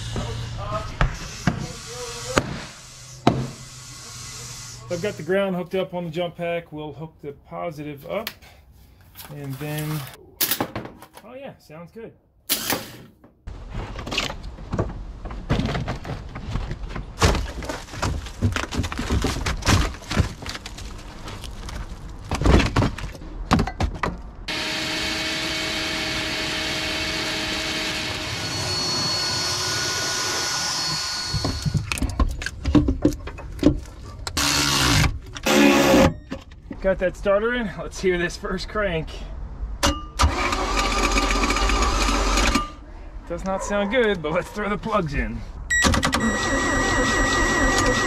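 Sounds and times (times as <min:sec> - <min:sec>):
tools and metal parts clattering: 0:09.2 - 0:11.3
shop vacuum running: 0:24.5 - 0:31.8, 0:46.2 - 0:48.0.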